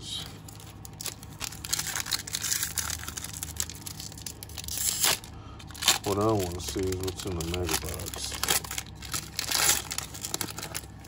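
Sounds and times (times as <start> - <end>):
foil wrappers crinkling: 0.2 - 11.0.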